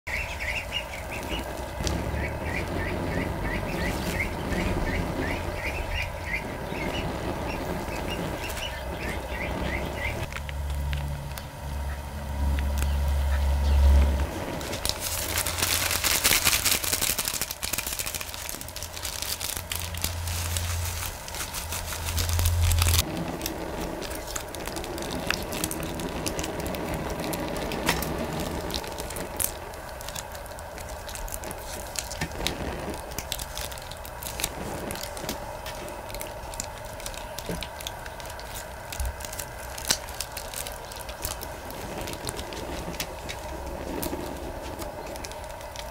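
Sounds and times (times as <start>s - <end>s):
ducklings peeping: 0.1s - 10.3s, 11.3s - 15.4s
seasoning packets rustling: 0.1s - 10.9s, 14.0s - 45.9s.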